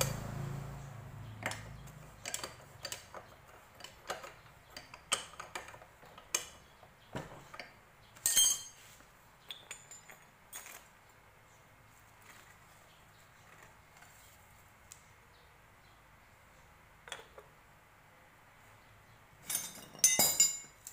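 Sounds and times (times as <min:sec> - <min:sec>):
hand tool clinking on metal: 0:08.2 - 0:08.8, 0:19.4 - 0:20.9.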